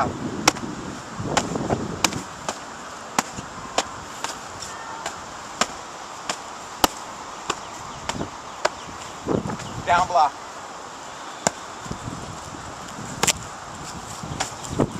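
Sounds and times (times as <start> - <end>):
foam bags smacking arms: 1.3 - 9.6.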